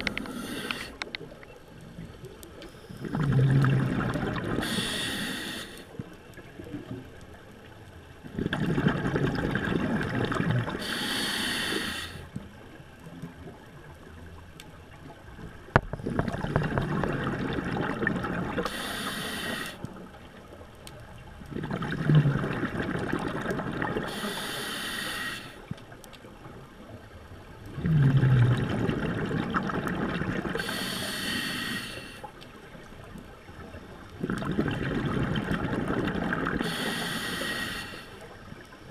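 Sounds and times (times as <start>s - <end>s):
scuba regulator breathing underwater: 0.0s - 1.1s, 2.6s - 6.0s, 10.6s - 12.3s, 18.6s - 19.8s, 23.9s - 25.6s, 30.4s - 32.4s, 35.7s - 38.3s.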